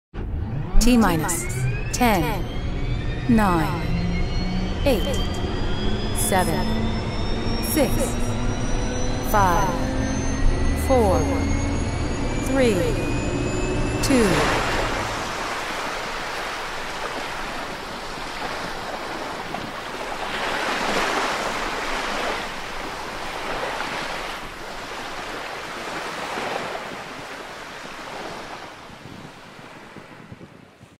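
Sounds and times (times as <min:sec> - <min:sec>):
waves washing ashore: 0:14.0 - 0:30.9
wind on microphone: 0:25.6 - 0:30.9.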